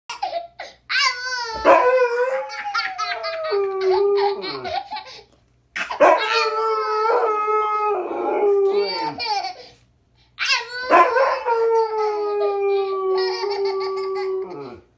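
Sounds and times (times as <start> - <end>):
husky howling and yowling: 1.5 - 4.8, 6.0 - 9.2, 10.8 - 14.9
toddler laughing: 2.5 - 6.6, 8.6 - 9.8, 12.8 - 14.8.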